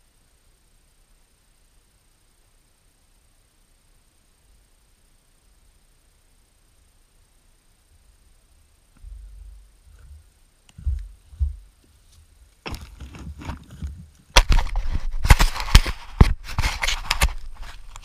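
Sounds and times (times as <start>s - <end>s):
dull thumps: 9.0s - 16.4s
rustling and scraping: 9.0s - 18.0s.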